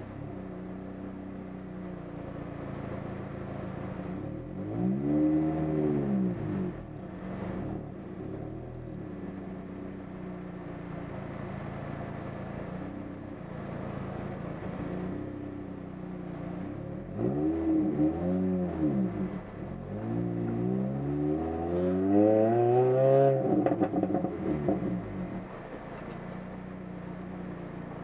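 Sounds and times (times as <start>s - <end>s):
engine revving: 4.2s - 7.9s, 17.0s - 25.5s.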